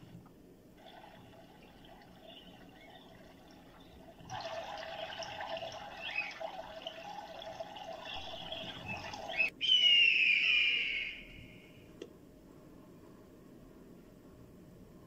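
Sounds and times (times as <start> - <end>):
water and gull flock: 1.4 - 9.5
bird of prey screaming: 9.3 - 11.8.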